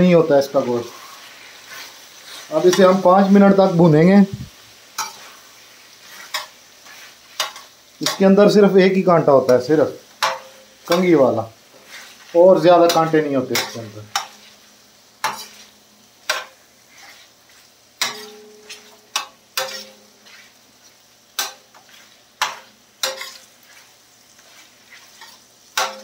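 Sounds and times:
faint frying sizzle: 0.0 - 26.0
metal spatula scraping steel pan: 5.0 - 5.4, 6.0 - 8.6, 10.2 - 14.6, 15.2 - 20.6, 21.4 - 26.0.

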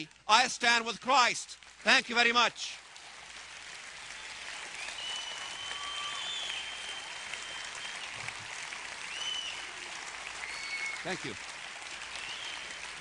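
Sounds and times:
audience applauding: 1.5 - 13.0
high whistles: 4.8 - 8.2, 9.1 - 9.7, 10.4 - 11.1, 12.2 - 12.8.

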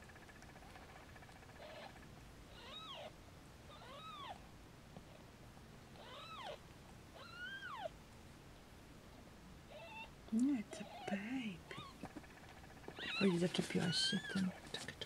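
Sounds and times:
newborn kittens mewing: 1.6 - 4.4, 6.0 - 7.9, 9.7 - 12.1, 12.8 - 14.9.

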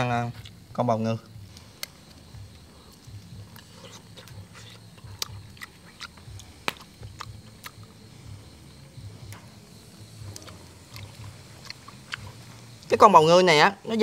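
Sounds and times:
person chewing: 1.5 - 8.1, 10.2 - 12.8
wet mouth clicks and smacks: 2.9 - 7.9.

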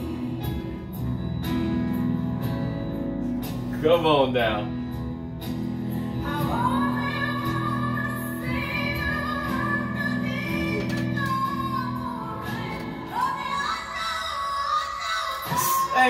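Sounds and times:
woman singing a power ballad: 0.0 - 1.6, 6.1 - 16.0
low musical accompaniment: 0.0 - 16.0.

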